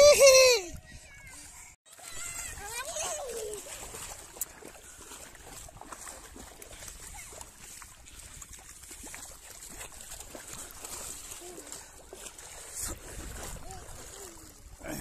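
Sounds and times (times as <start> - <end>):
river water rippling: 0.0 - 15.0
wind rumble on microphone: 0.4 - 2.8, 12.8 - 15.0.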